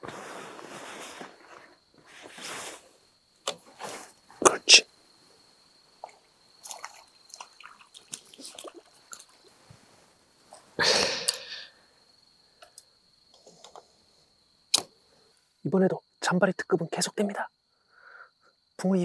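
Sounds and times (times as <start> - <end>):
rustle: 0.0 - 4.4, 5.0 - 11.9.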